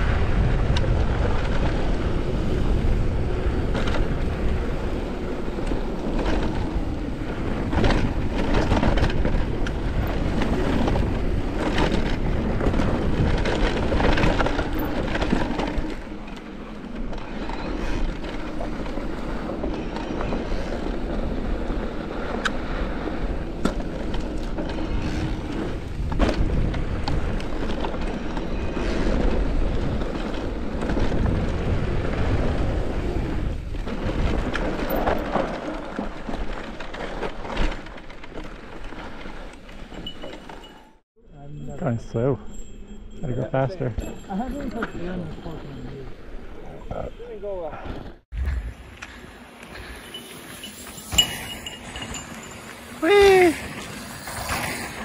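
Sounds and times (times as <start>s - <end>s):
tyre and wind rush: 0.0s - 55.0s
bike knocks and rattles: 0.7s - 40.8s, 49.8s - 53.0s.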